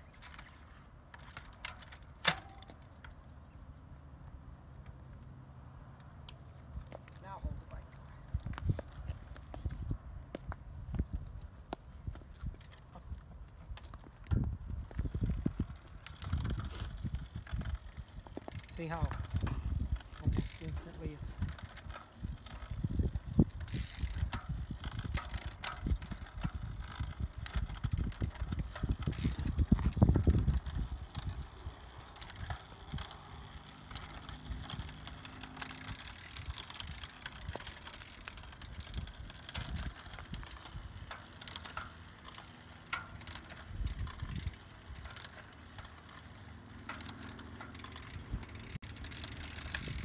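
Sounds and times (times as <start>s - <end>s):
bike chain running over cassette: 14.8s - 50.0s
chain clicking and ticking: 15.6s - 50.0s.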